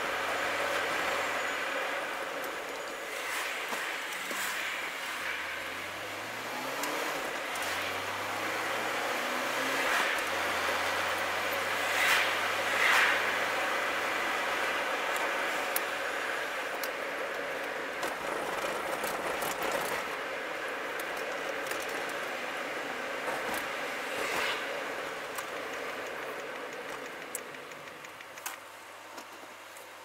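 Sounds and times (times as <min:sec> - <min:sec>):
road and engine noise: 0:00.0 - 0:30.0
sharp ticks and rattles: 0:16.7 - 0:20.2, 0:25.0 - 0:28.7.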